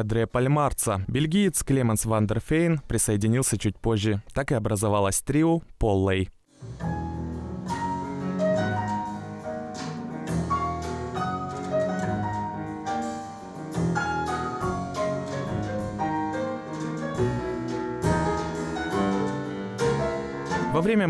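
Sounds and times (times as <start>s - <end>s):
drum kit cymbal and drum strokes: 6.5s - 20.7s
grand piano melody: 6.6s - 21.0s
upright double bass: 6.7s - 20.9s.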